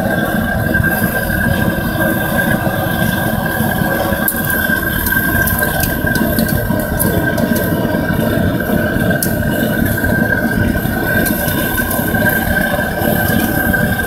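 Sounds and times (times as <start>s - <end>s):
furnace roaring with high whine: 0.0s - 14.0s
steel rod ticks and scrapes: 3.0s - 14.0s.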